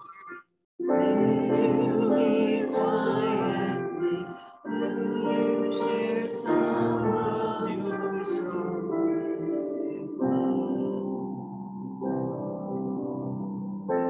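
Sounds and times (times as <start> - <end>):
piano accompaniment: 0.0 - 14.0
voices singing a hymn: 0.8 - 11.4.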